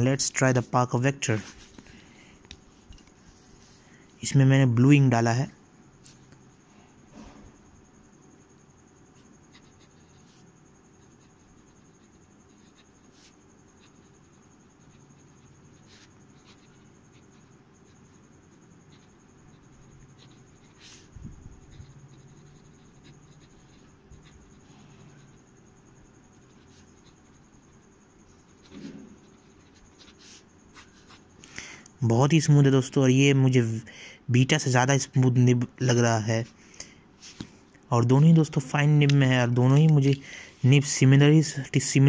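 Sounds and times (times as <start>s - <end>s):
fountain pen scratching on paper: 9.2s - 10.4s, 11.0s - 25.5s, 26.3s - 31.2s.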